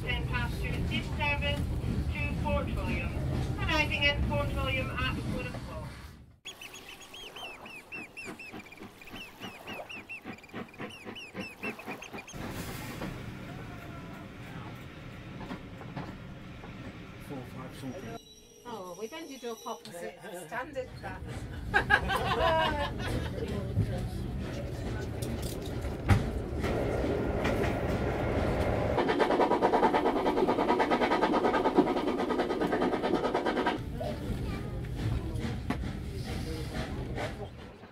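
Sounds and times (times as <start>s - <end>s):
train rumbling: 0.0s - 18.2s, 20.6s - 37.9s
rhythmic beat of moving train: 0.1s - 5.6s, 6.5s - 17.6s, 20.8s - 37.9s.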